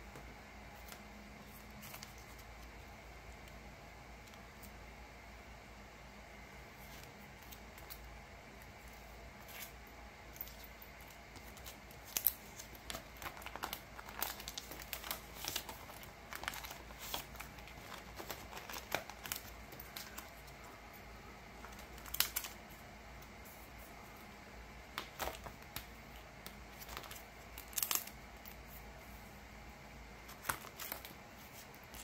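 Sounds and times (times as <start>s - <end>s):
plastic sleeves crinkling and rustling: 10.4s - 20.9s, 21.5s - 22.8s, 24.9s - 28.8s, 30.2s - 32.0s.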